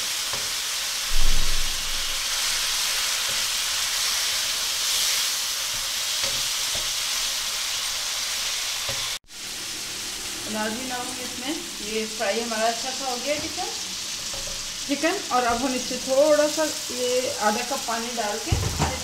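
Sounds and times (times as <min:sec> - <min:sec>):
chicken sizzling in oil: 0:00.0 - 0:19.0
thump: 0:01.1 - 0:02.3, 0:18.5 - 0:19.0
spatula stirring in wok: 0:02.3 - 0:09.2, 0:13.9 - 0:15.0.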